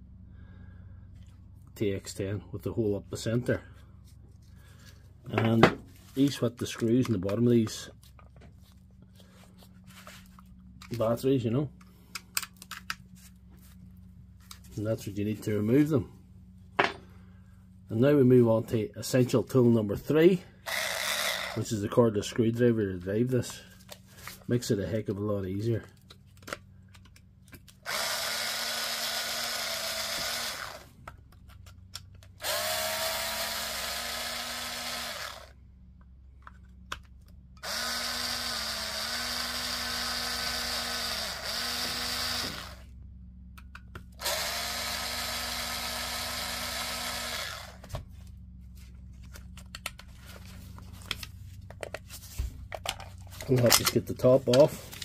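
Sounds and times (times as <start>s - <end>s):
cordless screwdriver motor whine: 20.6s - 21.7s, 27.7s - 31.0s, 32.2s - 35.6s, 37.6s - 43.0s, 44.2s - 47.9s.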